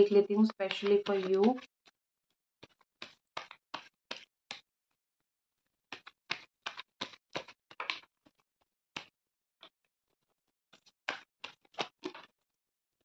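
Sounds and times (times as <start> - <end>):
cards being shuffled: 0.6 - 1.6, 2.6 - 4.6, 5.9 - 8.1, 10.8 - 12.3.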